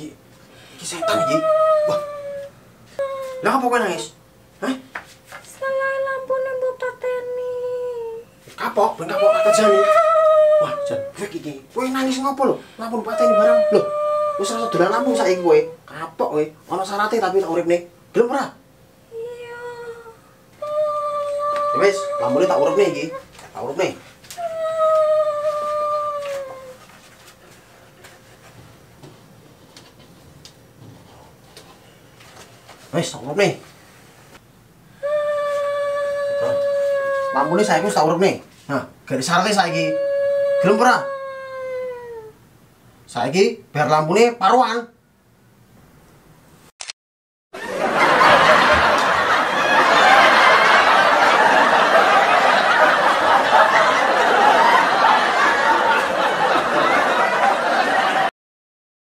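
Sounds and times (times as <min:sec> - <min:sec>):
canned audience laugh track: 0:47.6 - 0:58.3.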